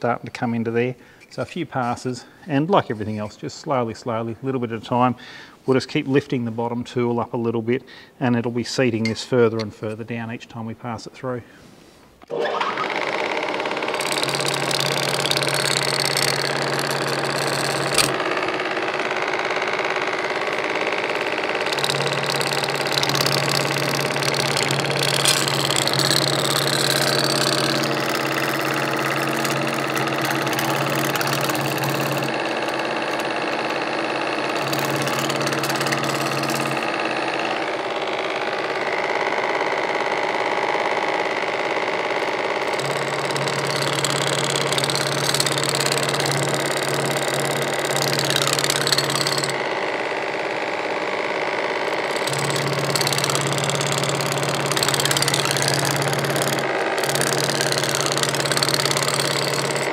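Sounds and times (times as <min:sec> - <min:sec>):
metalworking machine humming: 0:12.3 - 0:59.9.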